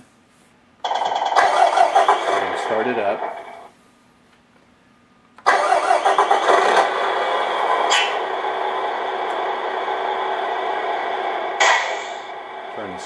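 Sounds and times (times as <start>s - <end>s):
simulated diesel engine through speaker: 0.9s - 3.7s, 5.4s - 13.0s.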